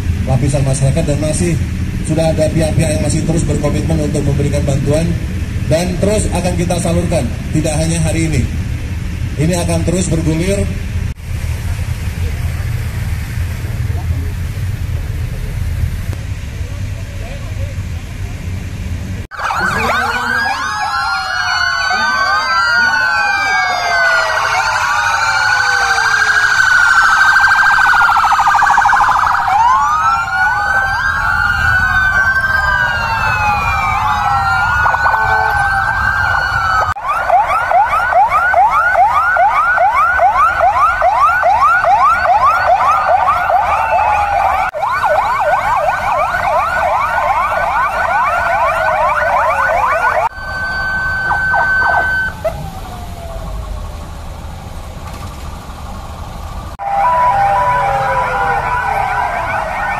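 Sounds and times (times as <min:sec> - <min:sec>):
police sirens wailing and yelping: 0:00.0 - 0:10.7, 0:19.2 - 0:55.0, 0:55.6 - 0:59.9
steady siren tone: 0:19.3 - 0:54.8, 0:56.7 - 0:59.9.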